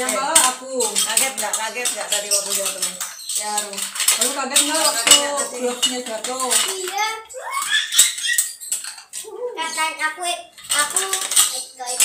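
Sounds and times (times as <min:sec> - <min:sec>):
people talking: 0:00.0 - 0:07.9, 0:09.2 - 0:12.0
plastic blocks clattering: 0:00.0 - 0:12.0.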